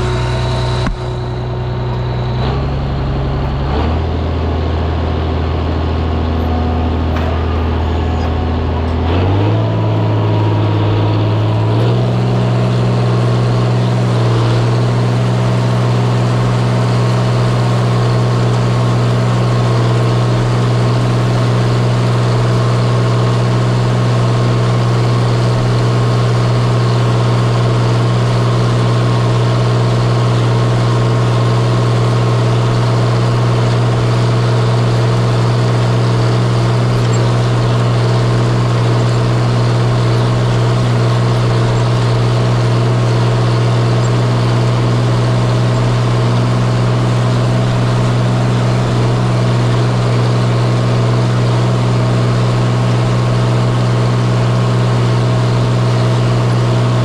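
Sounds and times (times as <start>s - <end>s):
tractor engine running: 0.0s - 57.0s.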